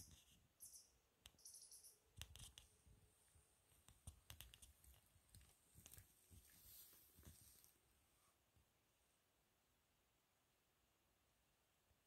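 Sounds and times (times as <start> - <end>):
soft rustles: 2.6 - 8.4.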